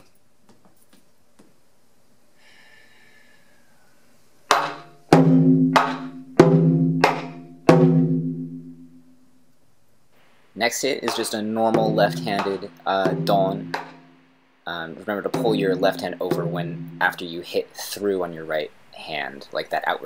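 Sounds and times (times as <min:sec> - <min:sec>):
taiko drum strikes: 0:04.5 - 0:08.9, 0:11.1 - 0:14.2, 0:15.3 - 0:17.2.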